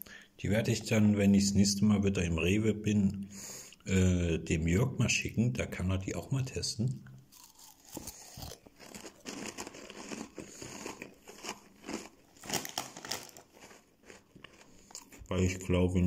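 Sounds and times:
plastic snack bag crinkling: 0:07.4 - 0:15.2.

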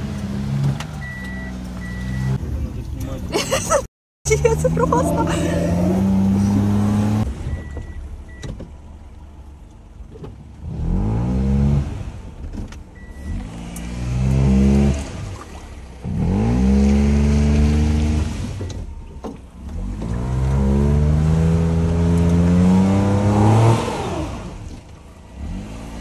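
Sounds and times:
small car engine revving: 0:04.3 - 0:07.3, 0:10.6 - 0:18.8, 0:19.6 - 0:26.0.

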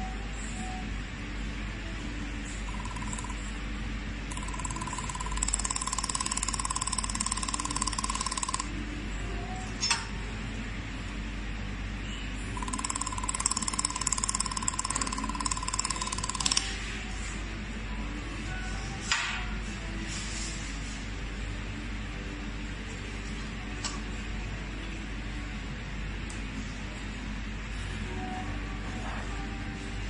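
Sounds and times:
laser welder buzzing: 0:04.3 - 0:08.7, 0:12.6 - 0:16.9.

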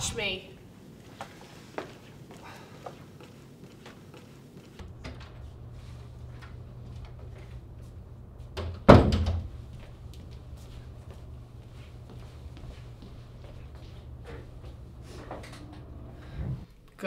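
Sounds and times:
steady low hum: 0:00.0 - 0:16.9
door slamming: 0:08.6 - 0:09.5.

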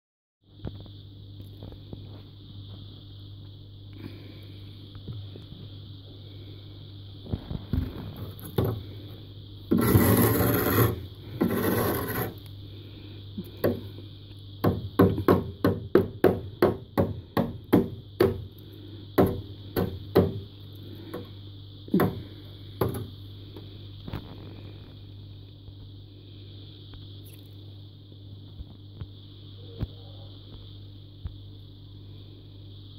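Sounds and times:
steady low hum: 0:00.4 - 0:32.9
frost being scraped: 0:09.7 - 0:12.5.

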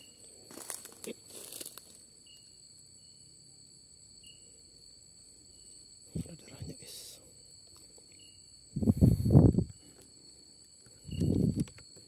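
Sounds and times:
crickets trilling: 0:00.0 - 0:12.0
short insect chirp: 0:00.0 - 0:12.0
footsteps in dry leaves: 0:00.4 - 0:02.0.

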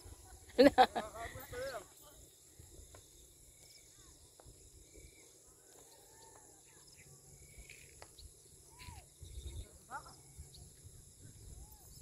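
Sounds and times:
insects buzzing: 0:00.0 - 0:12.0
bird chirps: 0:01.5 - 0:12.0.

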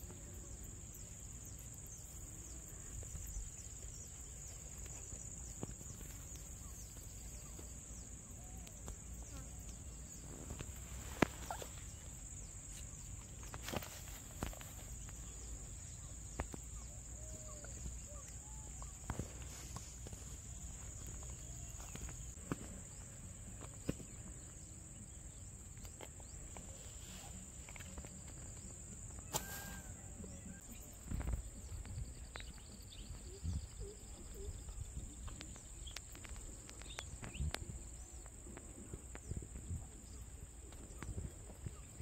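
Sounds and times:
short chirping calls: 0:11.1 - 0:12.1.

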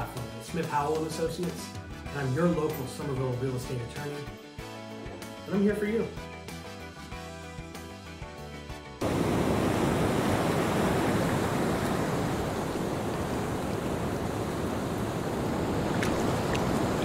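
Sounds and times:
ocean waves breaking on shore: 0:09.0 - 0:17.0.

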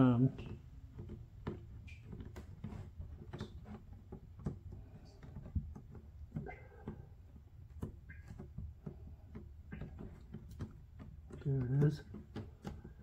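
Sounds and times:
fingers tapping plastic: 0:00.0 - 0:13.0.

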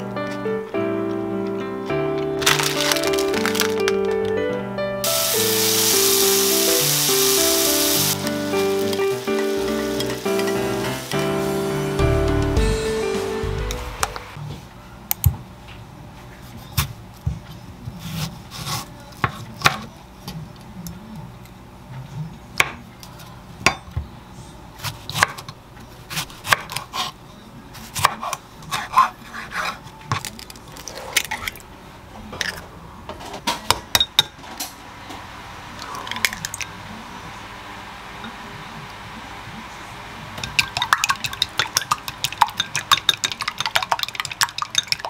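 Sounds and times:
egg cracking over glass bowl: 0:40.5 - 0:45.0.

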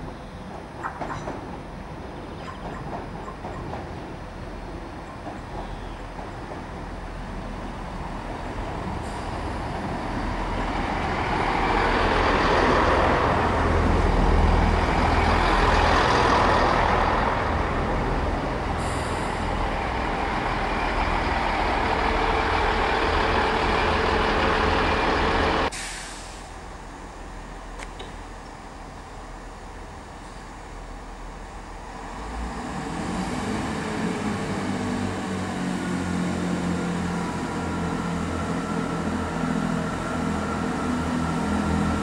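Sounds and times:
train engine rumble: 0:00.0 - 0:42.0
brief hiss: 0:25.7 - 0:26.6.

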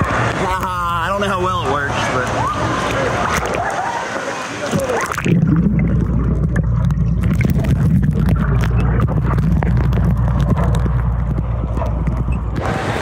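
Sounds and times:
bubbles clicking and popping: 0:02.8 - 0:03.8, 0:04.7 - 0:12.6
muffled underwater rumble: 0:04.6 - 0:13.0.

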